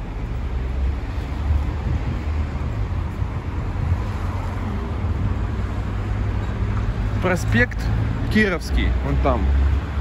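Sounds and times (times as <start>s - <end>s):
city traffic: 0.0s - 10.0s
wind buffeting microphone: 0.9s - 7.0s.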